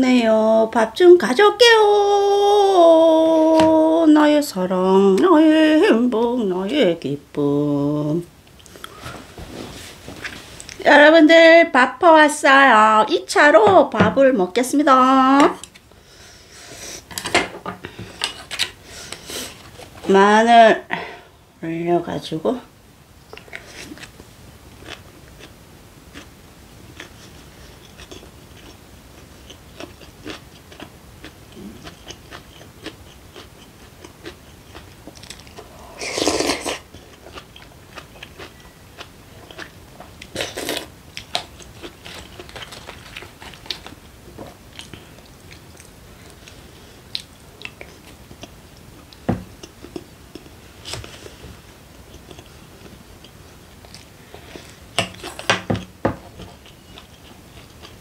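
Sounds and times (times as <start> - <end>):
person chewing food: 23.4 - 58.0.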